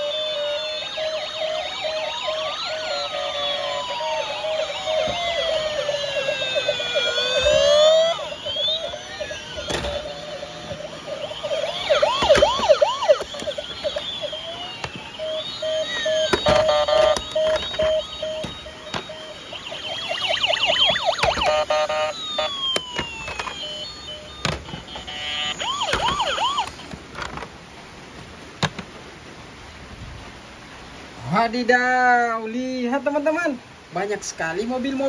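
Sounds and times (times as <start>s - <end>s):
steady beeping pulse: 0.0s - 22.6s
warbling siren yelps: 0.0s - 26.8s
toy sirens wailing: 0.0s - 26.9s.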